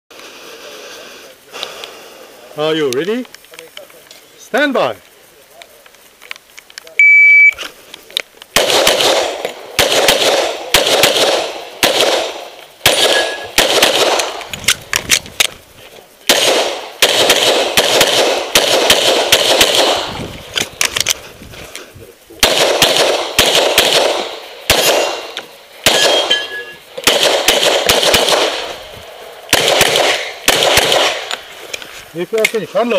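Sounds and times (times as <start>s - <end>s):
shot timer beep: 7.0s - 7.6s
pistol firing rapid shots: 8.5s - 14.5s, 16.2s - 20.2s, 22.4s - 28.8s, 29.4s - 31.4s.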